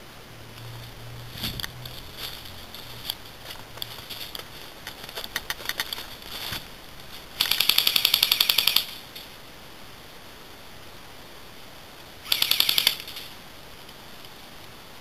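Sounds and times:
airsoft rifle full-auto burst: 7.4 - 9.1, 12.2 - 13.3.

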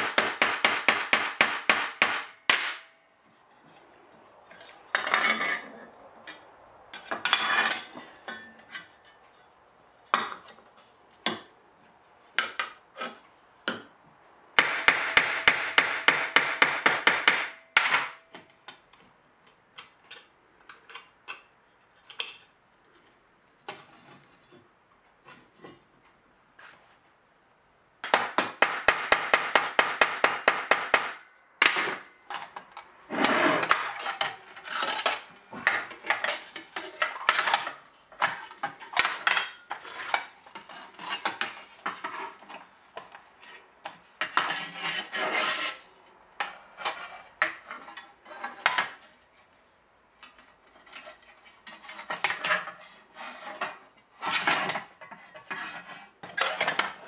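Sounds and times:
steel plates clinking and scraping: 7.0 - 9.2, 32.3 - 42.6.

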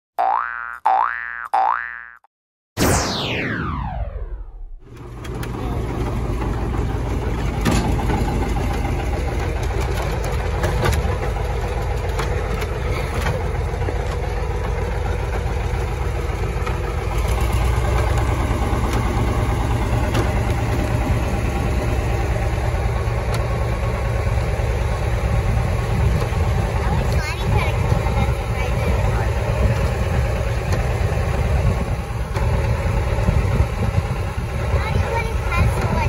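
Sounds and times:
tractor engine rumbling: 4.8 - 36.0.

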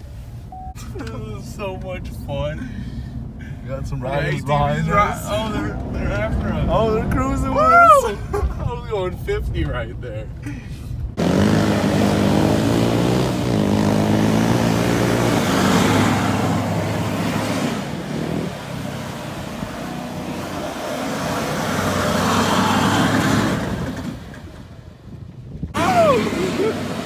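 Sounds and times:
truck engine revving: 11.1 - 24.8, 25.7 - 27.0.

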